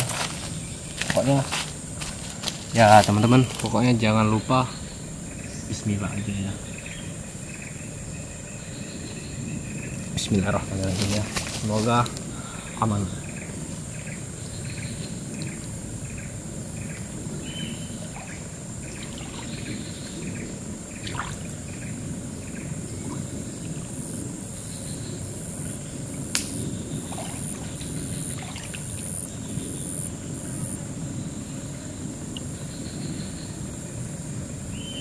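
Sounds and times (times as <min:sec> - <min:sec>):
insects buzzing: 0:00.0 - 0:35.0
water sloshing around legs: 0:18.0 - 0:20.2, 0:21.0 - 0:21.6, 0:27.1 - 0:29.2
sharp click: 0:26.3 - 0:26.6.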